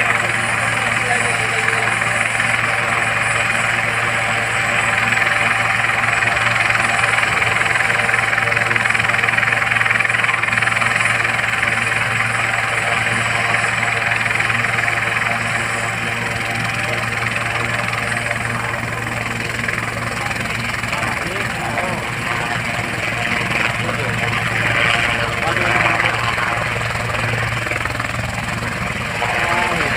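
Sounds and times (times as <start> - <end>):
helicopter engine whine: 0.0 - 29.9
helicopter rotor hum: 0.0 - 29.9.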